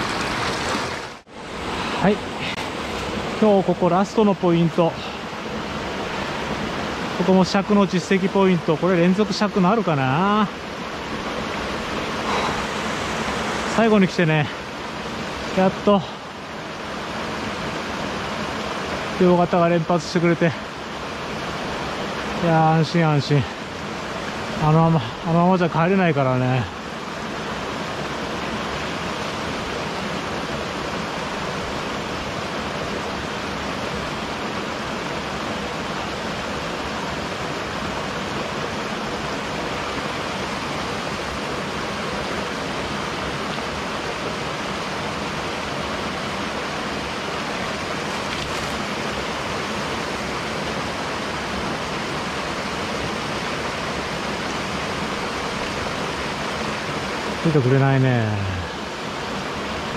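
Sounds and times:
waterfall splashing into pool: 0.0 - 1.3, 12.2 - 14.4, 43.3 - 59.9.

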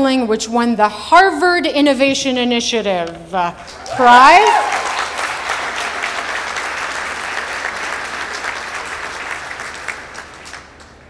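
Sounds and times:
crowd applauding: 3.6 - 11.0.

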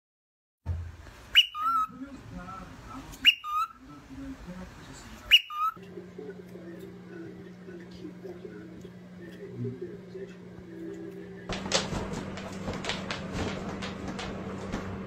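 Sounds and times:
cockatiel whistled calls: 1.3 - 1.9, 3.2 - 3.8, 5.3 - 5.8.

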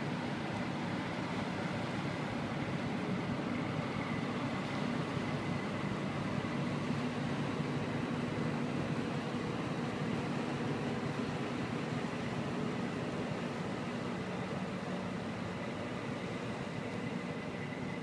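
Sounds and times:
boat diesel engine droning: 0.0 - 18.0.

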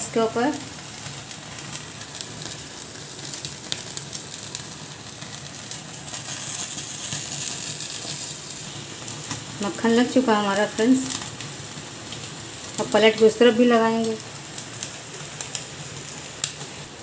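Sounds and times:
butter sizzling: 0.0 - 17.0
small crackling pops: 0.5 - 9.6, 13.9 - 16.8.

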